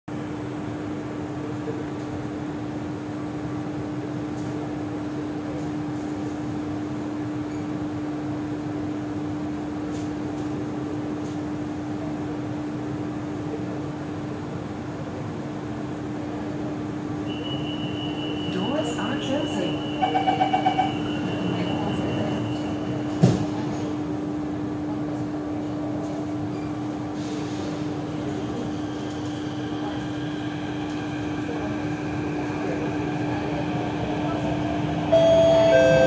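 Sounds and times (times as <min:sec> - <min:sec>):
train ventilation hum: 0:00.1 - 0:36.0
door closing warning tone: 0:35.1 - 0:36.0.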